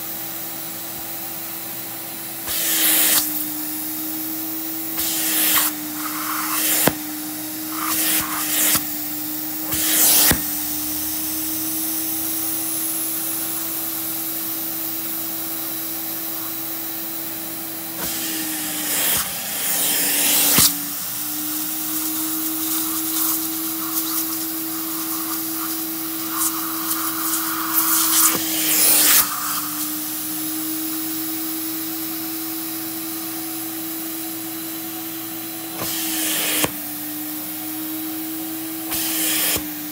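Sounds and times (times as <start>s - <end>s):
vacuum motor humming: 0.0s - 39.9s
hissing spray and suction: 2.5s - 3.8s, 4.6s - 15.0s, 17.8s - 30.2s, 35.8s - 37.2s, 38.8s - 39.9s.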